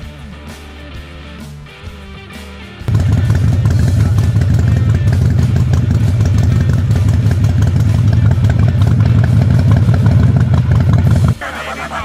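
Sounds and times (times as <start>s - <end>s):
motorcycle engine idling: 2.9s - 11.4s.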